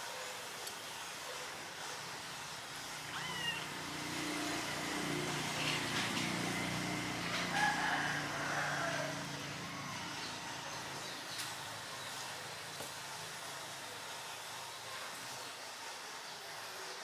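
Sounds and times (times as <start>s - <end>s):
kitten mewing: 3.0s - 3.9s
rooster crowing in the distance: 3.1s - 10.5s.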